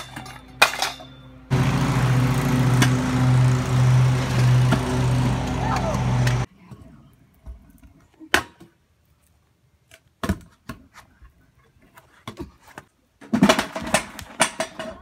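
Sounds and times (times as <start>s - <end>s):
loud hum: 1.5s - 6.5s.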